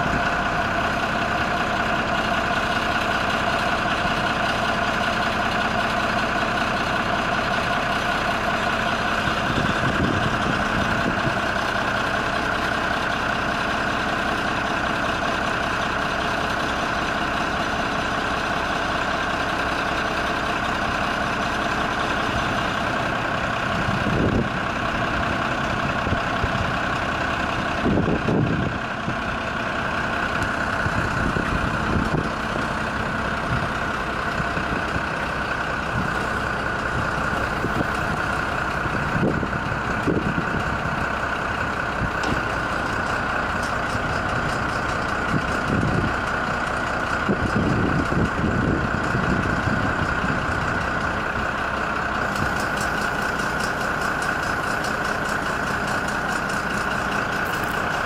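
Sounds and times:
diesel truck engine running: 0.0 - 58.0
hydraulic whine: 52.2 - 58.0.

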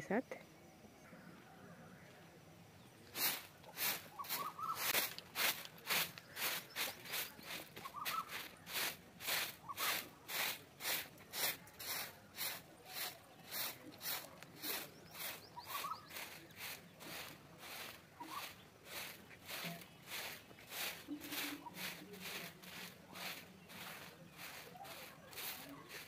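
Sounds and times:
broom sweeping packed earth: 2.9 - 26.0.

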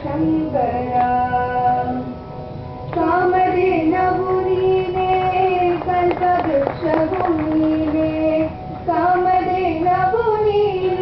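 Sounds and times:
women singing long held notes: 2.9 - 11.0.

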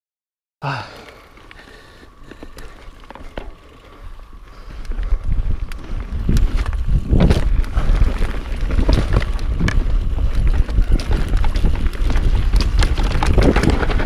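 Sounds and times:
bike clicks and rattles: 0.7 - 14.0
low tyre rumble: 0.7 - 14.0
wind buffeting camera: 1.4 - 14.0.

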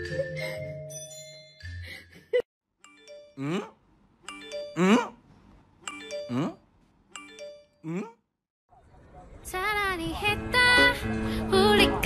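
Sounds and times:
mallet percussion music: 5.9 - 6.5.

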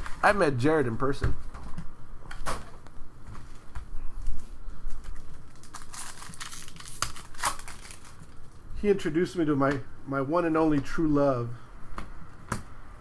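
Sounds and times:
card pack wrapper tearing: 5.0 - 8.5.

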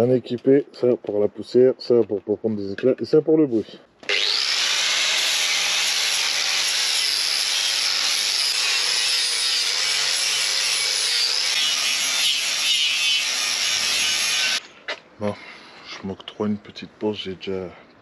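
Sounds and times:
power sander on steel: 4.1 - 14.6.

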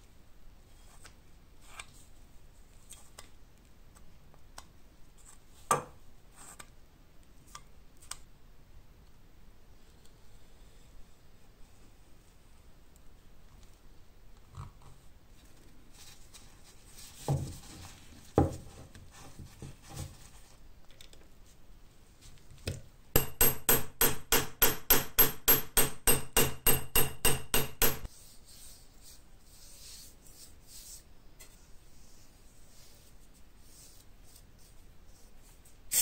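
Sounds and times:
hammer tapping metal pin: 23.2 - 28.1.

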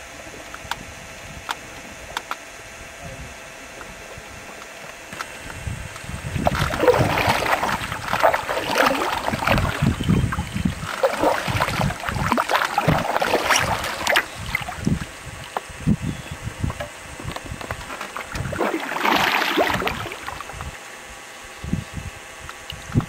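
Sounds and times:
wind buffeting microphone: 5.4 - 18.7
paddles splashing through water: 6.4 - 15.1, 17.8 - 20.6.

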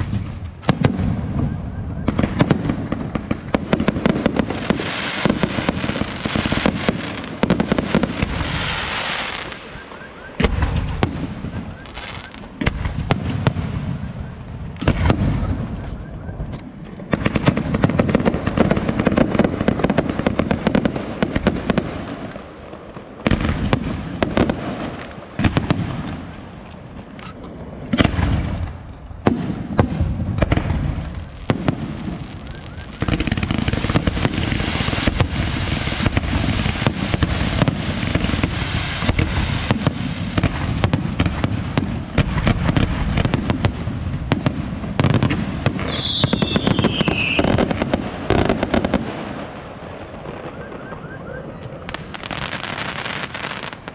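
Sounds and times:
fireworks bursting and crackling: 0.0 - 53.9
falling firework whistle: 0.6 - 2.6, 8.3 - 12.5, 13.5 - 16.6, 32.2 - 36.0, 45.8 - 47.8, 50.1 - 53.7.

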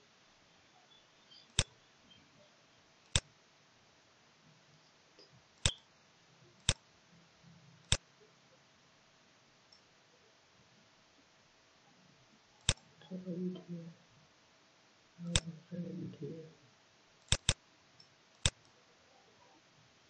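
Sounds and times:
computer mouse clicks: 1.4 - 1.7, 3.1 - 3.3, 5.2 - 5.8, 6.6 - 6.8, 7.8 - 8.0, 12.6 - 12.9, 15.2 - 15.5, 17.2 - 18.8.

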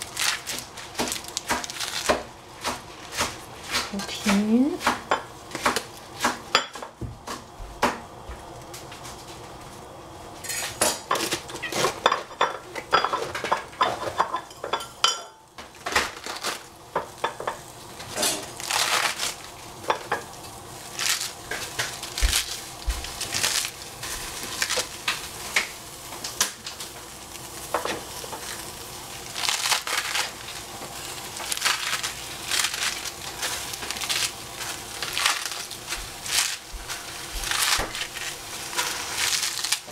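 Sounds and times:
lettuce leaves tearing: 0.0 - 6.4, 15.9 - 16.8, 18.4 - 19.8, 20.8 - 25.6, 28.2 - 39.9
leaves rustling against metal: 17.9 - 39.9.

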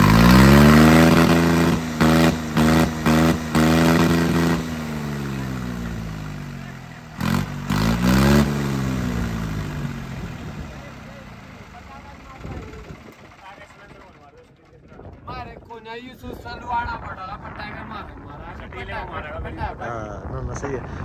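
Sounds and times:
tractor diesel engine revving: 0.0 - 14.3.

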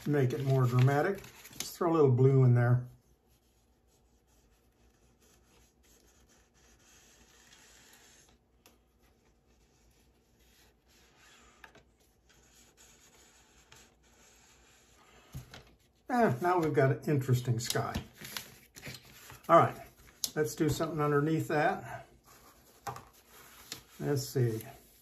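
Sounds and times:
painting iron rubbing over wax: 3.1 - 8.4, 9.4 - 15.3.

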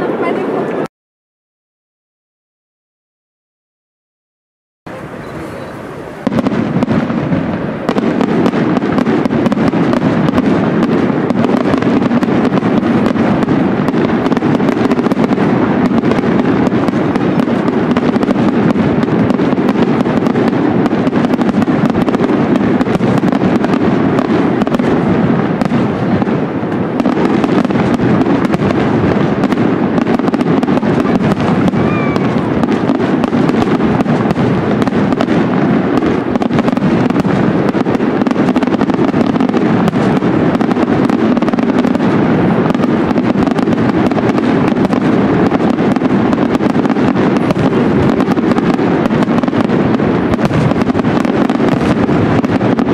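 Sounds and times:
fireworks bursting and crackling: 0.0 - 0.9, 4.9 - 52.9.

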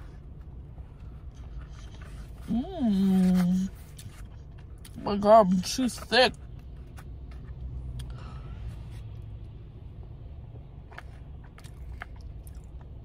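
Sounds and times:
steady low hum: 0.0 - 13.0
person chewing: 10.8 - 13.0.

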